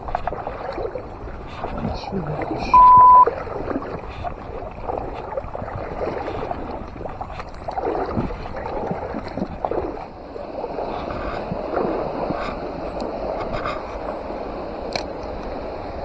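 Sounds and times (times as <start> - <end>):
river water flowing and gurgling: 0.0 - 16.0.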